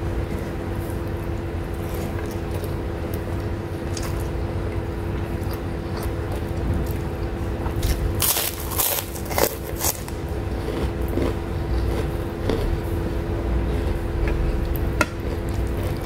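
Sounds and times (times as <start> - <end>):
steady low hum: 0.0 - 16.0
cracker crunching: 0.8 - 16.0.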